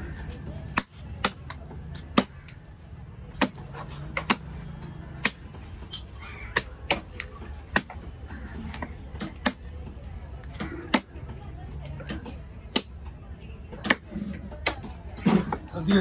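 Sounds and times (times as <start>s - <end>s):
knife chopping on wooden block: 0.7s - 2.5s, 3.4s - 4.5s, 8.7s - 9.6s.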